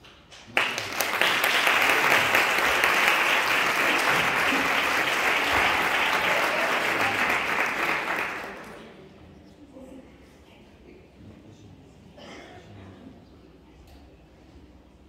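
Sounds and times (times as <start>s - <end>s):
audience applauding: 0.4s - 9.0s.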